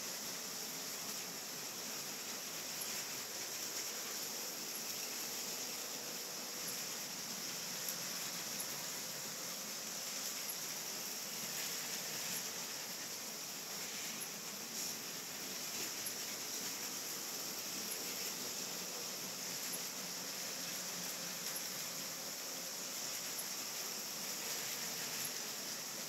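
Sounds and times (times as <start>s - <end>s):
steady hiss: 0.0s - 26.0s
toy trains clicking on plastic track: 13.8s - 22.2s, 23.0s - 26.0s.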